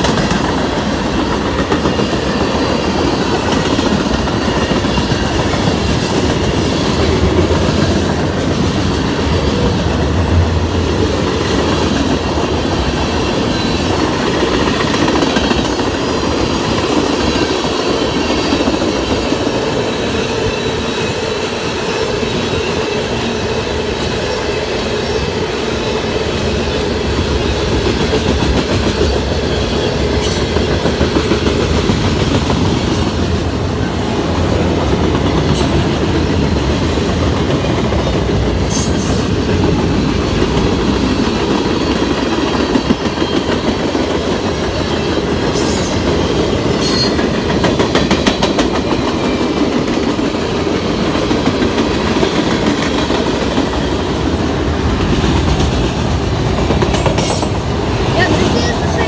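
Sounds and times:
freight train rumbling past: 0.0s - 59.0s.

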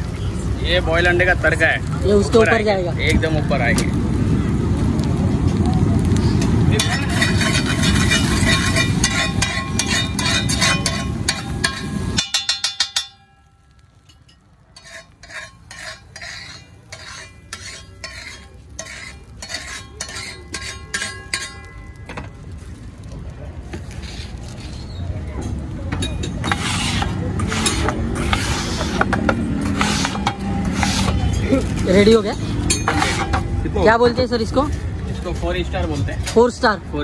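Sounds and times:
food frying: 0.0s - 12.2s
loud background noise: 0.0s - 37.0s
metal spatula scraping a pan: 6.3s - 13.2s, 14.7s - 22.4s, 23.7s - 25.0s, 26.0s - 33.9s
spatula rattling on pan: 6.7s - 13.2s, 14.1s - 22.2s.

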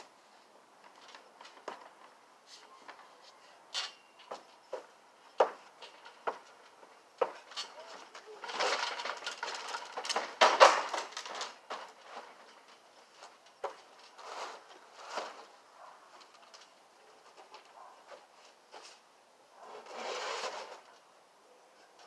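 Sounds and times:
rustles: 0.0s - 22.0s
plastic table crash: 8.5s - 12.0s.

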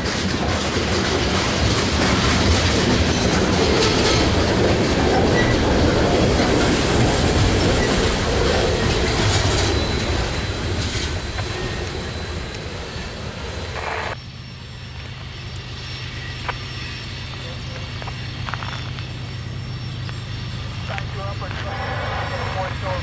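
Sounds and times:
train wheels rumbling on rails: 0.0s - 14.2s, 20.6s - 23.0s.

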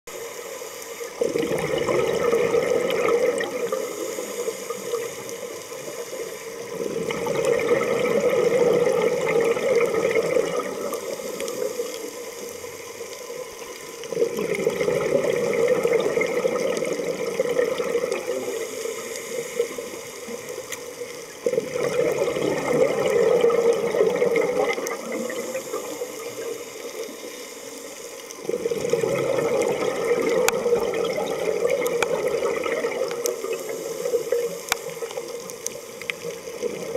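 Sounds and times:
exhaled bubbles rushing: 1.1s - 27.3s, 28.3s - 36.9s
regulator inhalations: 3.8s - 6.4s.

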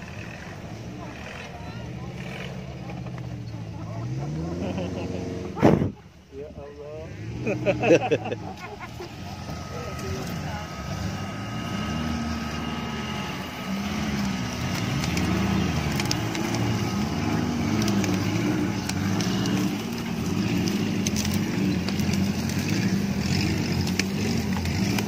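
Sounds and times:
car engine revving: 0.0s - 25.0s
dry stalks snapping: 13.5s - 25.0s.

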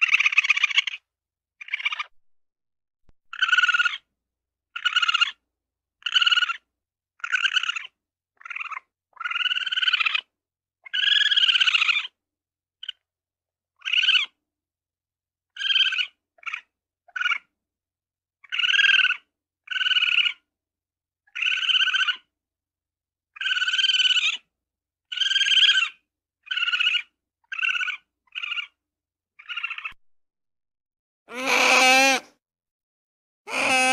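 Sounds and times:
ferret squeaking: 26.5s - 28.7s, 29.4s - 30.0s, 31.3s - 32.3s, 33.5s - 33.9s.

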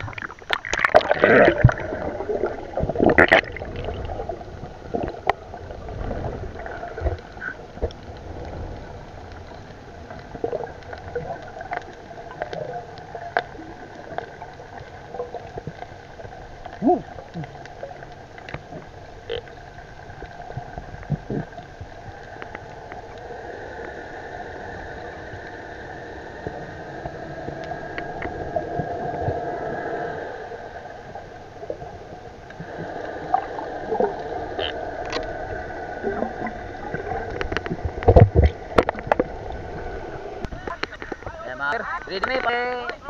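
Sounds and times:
muffled underwater drone: 0.0s - 43.0s
sharp underwater clicks: 34.5s - 35.4s.

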